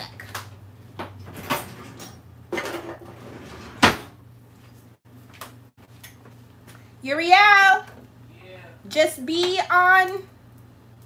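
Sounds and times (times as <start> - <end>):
kitchen drawers and cupboards shutting: 1.0 - 4.2.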